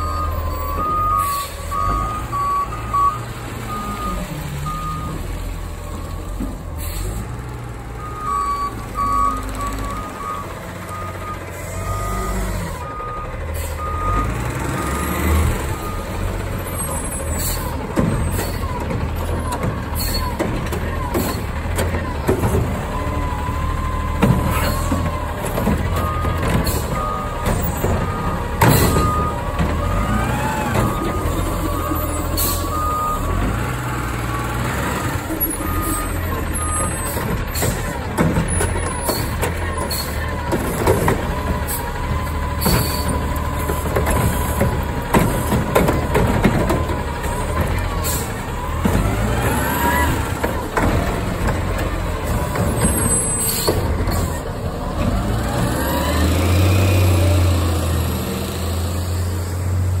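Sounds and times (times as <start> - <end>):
backup alarm beeps: 0.0 - 5.2, 30.8 - 33.3
garbage truck engine running: 0.0 - 60.0.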